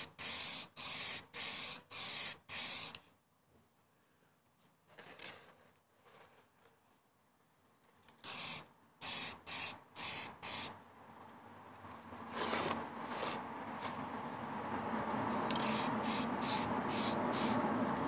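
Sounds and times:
aerosol spray can hissing: 0.0s - 3.0s, 8.2s - 10.7s, 15.5s - 17.6s.

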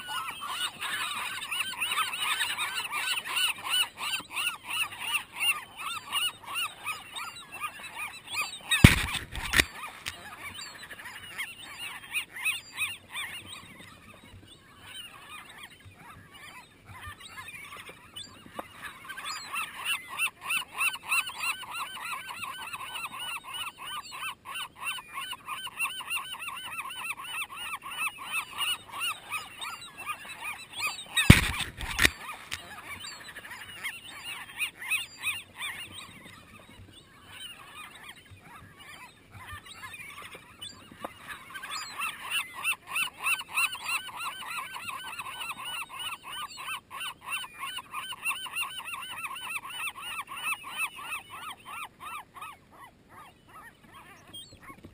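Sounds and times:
gulls squabbling and calling: 0.0s - 54.9s
loud thump on microphone: 8.8s - 9.7s, 31.3s - 32.2s.

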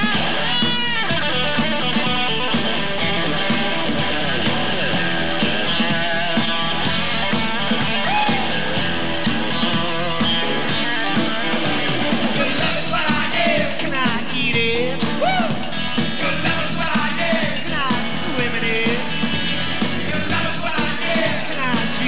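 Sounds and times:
drums: 0.0s - 22.0s
electric guitar: 0.0s - 22.0s
man singing: 12.2s - 22.0s.

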